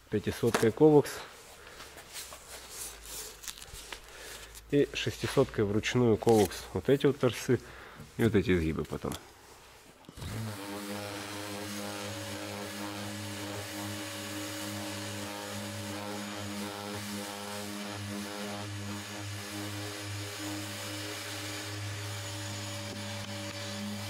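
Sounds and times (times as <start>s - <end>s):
orbital sander running: 10.2s - 24.0s.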